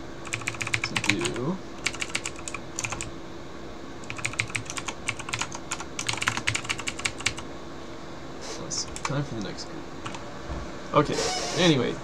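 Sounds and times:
keyboard keys clicking: 0.2s - 3.1s, 4.0s - 7.4s, 8.9s - 9.1s.

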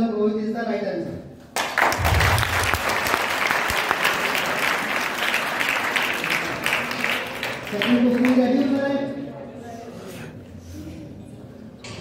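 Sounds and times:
children clapping: 1.6s - 8.7s
brief low rumble: 2.0s - 2.9s.

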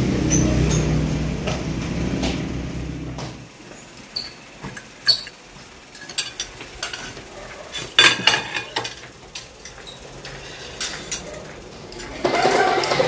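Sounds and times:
dishes and cutlery clinking: 4.2s - 13.0s.

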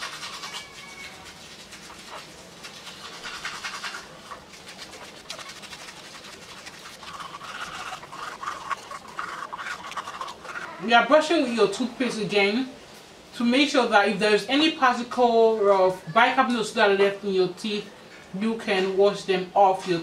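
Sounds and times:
toothbrush scrubbing teeth: 0.0s - 10.8s.

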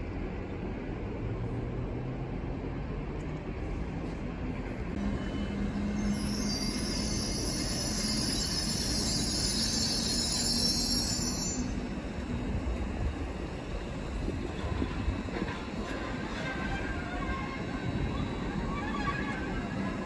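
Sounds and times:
railway wheels squealing on rails: 4.9s - 20.0s.

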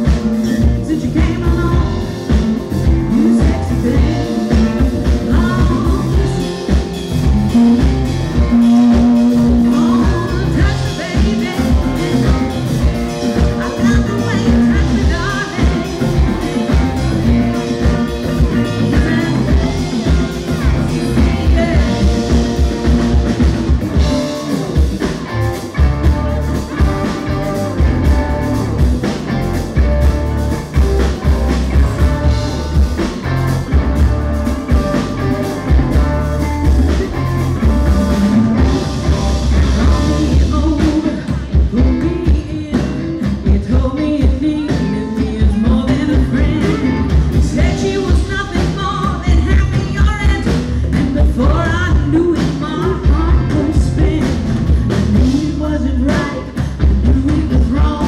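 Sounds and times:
live rock band playing: 0.0s - 58.0s
women singing: 2.9s - 6.5s, 9.4s - 22.9s, 39.5s - 54.4s.

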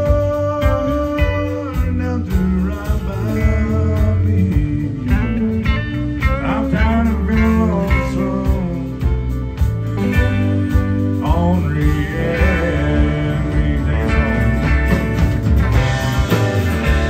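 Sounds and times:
bass and drums: 0.0s - 17.0s
guitar lead with bent notes: 0.0s - 17.0s.

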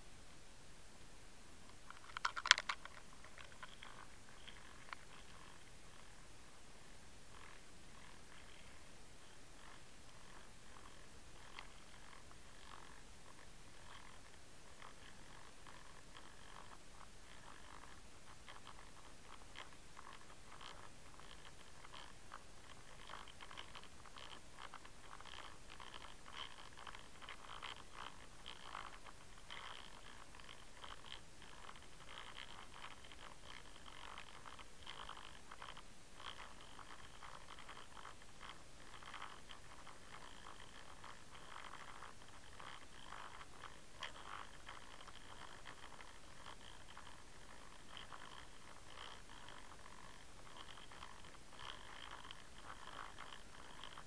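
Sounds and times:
small clicks and scrapes: 1.7s - 6.2s, 7.3s - 54.0s.

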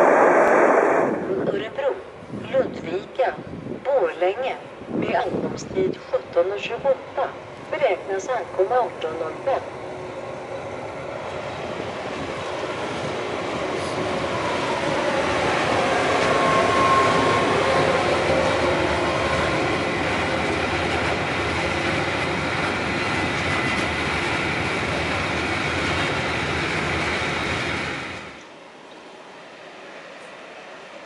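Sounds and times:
freight train wheels rumbling: 0.0s - 28.4s.

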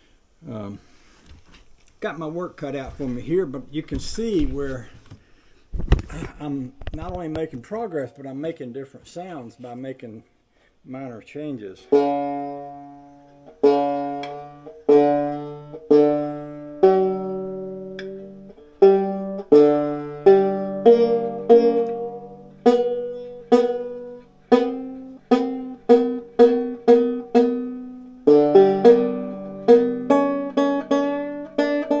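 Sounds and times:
banjo picking: 11.8s - 32.0s.

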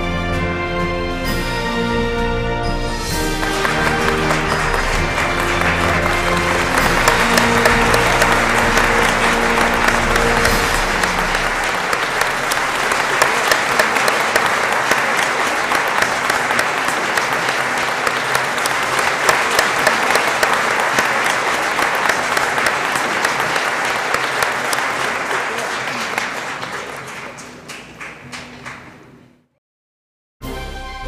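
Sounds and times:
music ending: 2.8s - 13.4s
audience applauding: 3.1s - 29.3s.

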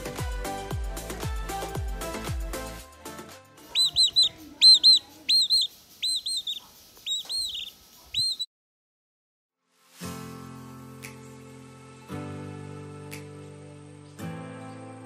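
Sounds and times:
background music: 0.0s - 3.7s, 9.8s - 15.0s
chick peeping: 3.7s - 8.5s.

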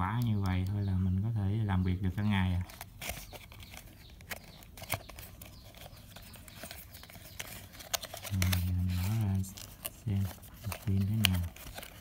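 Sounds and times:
cardboard box rustling: 2.7s - 12.0s.

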